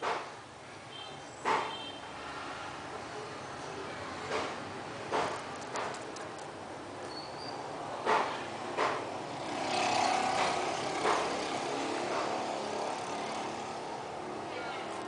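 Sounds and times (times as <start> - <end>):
road vehicle passing: 2.1 - 7.0, 7.6 - 15.0
sharp knocks: 4.3 - 6.2, 8.0 - 9.1, 10.3 - 11.4.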